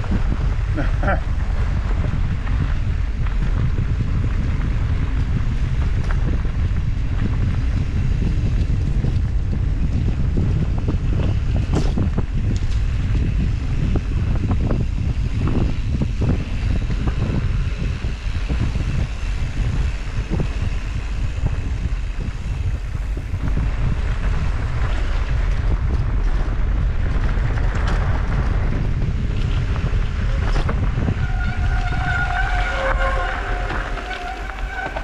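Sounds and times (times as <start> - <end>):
bike rattling over bumps: 0.0 - 35.0
tyres crunching on dirt trail: 0.0 - 35.0
wind buffeting microphone: 0.0 - 35.0.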